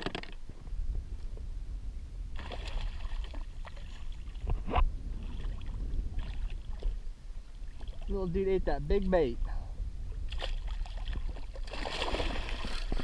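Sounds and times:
wind rumble on microphone: 0:00.0 - 0:13.0
water splashing against kayak: 0:02.4 - 0:08.2, 0:10.2 - 0:13.0.

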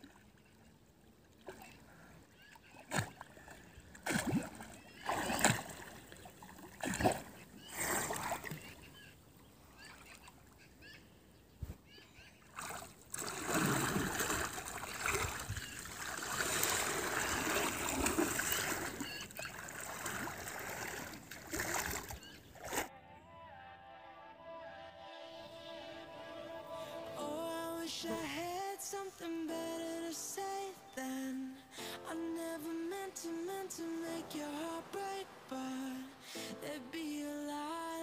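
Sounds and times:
swimming strokes splashing: 0:01.3 - 0:09.0, 0:12.5 - 0:22.9
hands splashing water: 0:02.8 - 0:08.7, 0:12.5 - 0:22.9.

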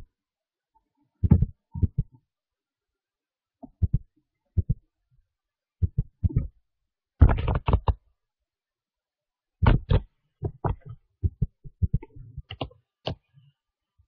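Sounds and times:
short thumps and knocks: 0:01.2 - 0:02.2, 0:07.2 - 0:08.0, 0:09.6 - 0:13.2.

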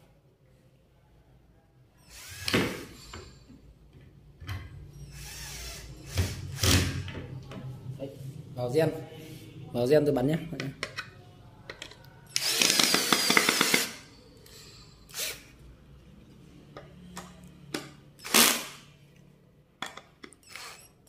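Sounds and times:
cordless drill driving a screw: 0:02.1 - 0:02.9, 0:05.1 - 0:06.8, 0:12.3 - 0:14.0, 0:15.1 - 0:15.4, 0:18.2 - 0:18.8, 0:20.4 - 0:20.9.

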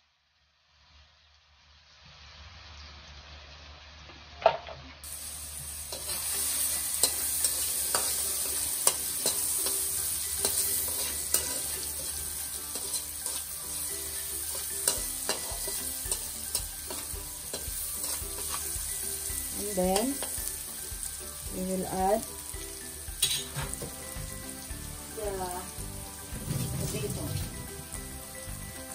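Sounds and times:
vegetables sizzling in oil: 0:00.0 - 0:04.4, 0:05.0 - 0:28.9
metal spatula scraping wok: 0:05.1 - 0:25.2, 0:25.8 - 0:28.2
sharp metallic clank: 0:23.2 - 0:24.0.

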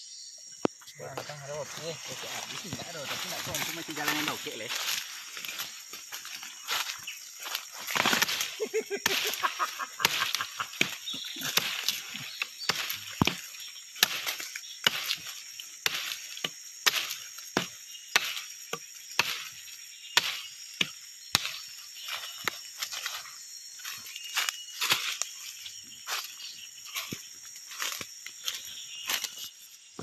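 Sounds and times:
high-pitched insect buzz: 0:00.0 - 0:30.0
footsteps crunching dry leaves: 0:01.0 - 0:16.2, 0:22.0 - 0:30.0
twigs snapping: 0:02.4 - 0:17.3.

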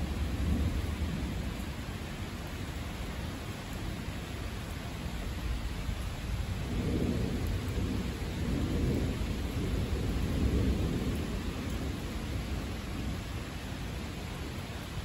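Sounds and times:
deep rumble of thunder: 0:00.0 - 0:01.8, 0:05.8 - 0:13.4
steady rain: 0:00.0 - 0:15.0.

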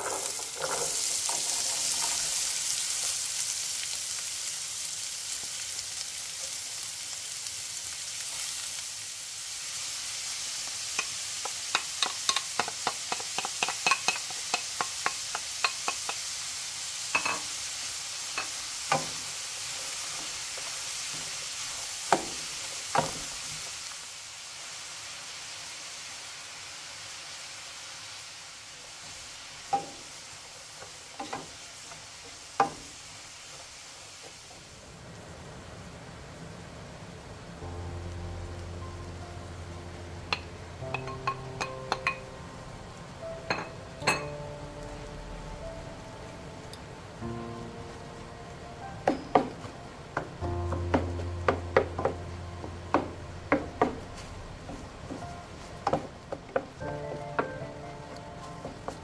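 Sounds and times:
onions sizzling in hot oil: 0:00.0 - 0:59.0
wooden spoon stirring and knocking: 0:11.4 - 0:16.2.

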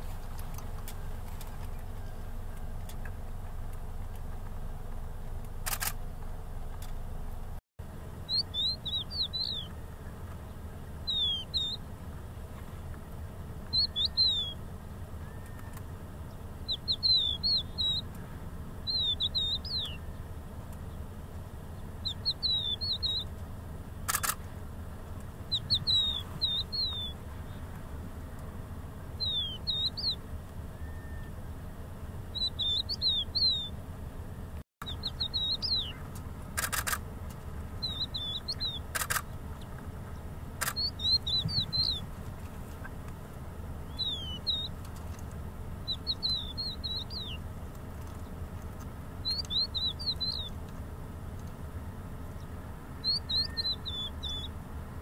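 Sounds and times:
lark singing whistled notes: 0:08.2 - 0:11.9, 0:13.6 - 0:21.1, 0:21.7 - 0:23.4, 0:25.4 - 0:27.7, 0:29.0 - 0:33.8, 0:34.8 - 0:36.1, 0:37.8 - 0:39.2, 0:40.1 - 0:42.1, 0:43.8 - 0:44.9, 0:45.7 - 0:47.5, 0:49.2 - 0:50.7, 0:52.3 - 0:55.0.

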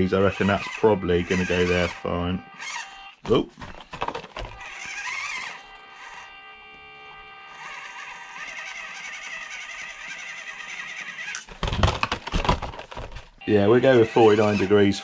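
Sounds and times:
electric motor whining: 0:00.0 - 0:03.2, 0:04.4 - 0:11.5, 0:13.6 - 0:15.0
toy truck knocking: 0:03.6 - 0:05.6.

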